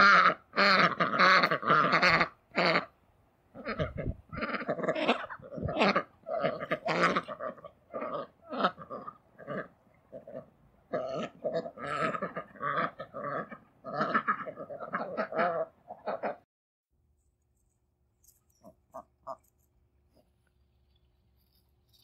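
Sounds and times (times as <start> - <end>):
ducks quacking: 0.0 - 16.4.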